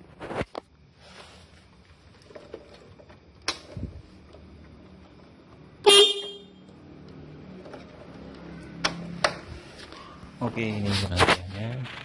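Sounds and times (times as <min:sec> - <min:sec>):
motorcycle horn beep: 0:05.8 - 0:06.7.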